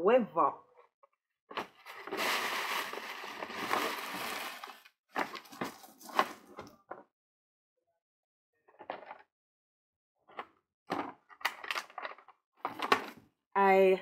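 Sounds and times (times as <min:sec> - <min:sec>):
metallic gift bag rustling: 0:01.6 - 0:06.6.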